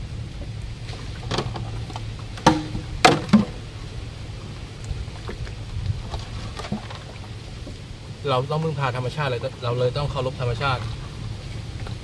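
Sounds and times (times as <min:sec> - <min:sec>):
low rumble: 0:00.0 - 0:08.2
boat paddling: 0:00.0 - 0:12.0
knocks against boat: 0:02.4 - 0:03.6.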